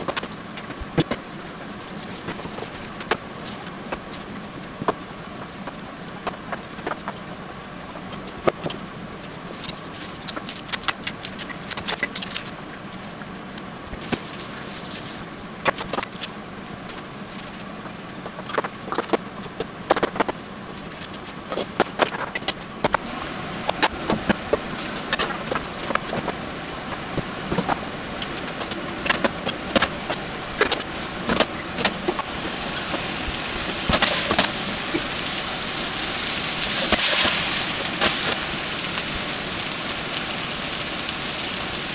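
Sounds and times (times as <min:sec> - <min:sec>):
potatoes sizzling in oil: 0:29.8 - 0:41.9.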